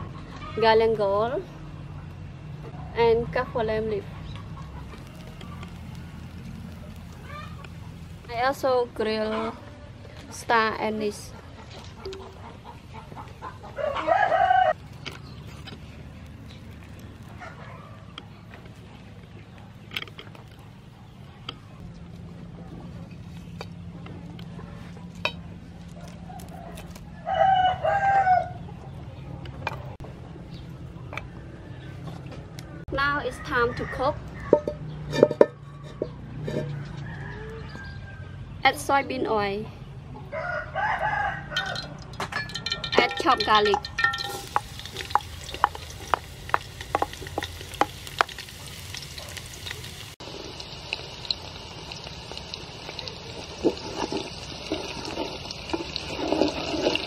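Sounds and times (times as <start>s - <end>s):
oil popping: 4.3s - 8.7s, 41.6s - 57.0s
garlic sizzling in hot oil: 4.4s - 9.1s, 42.6s - 57.0s
rooster crowing: 13.7s - 14.8s, 26.3s - 28.7s, 35.9s - 38.5s, 40.3s - 42.0s
wooden spoon stirring: 42.4s - 48.5s, 53.3s - 57.0s.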